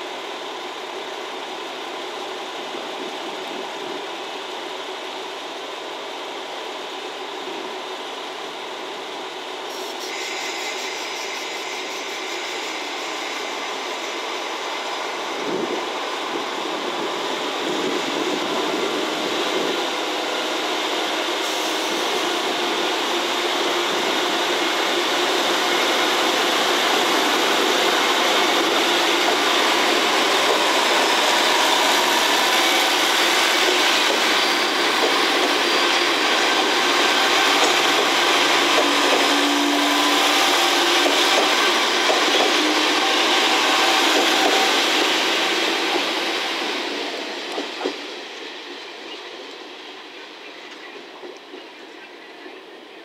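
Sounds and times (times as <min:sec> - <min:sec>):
train wheels on rails: 0:00.0 - 0:53.0.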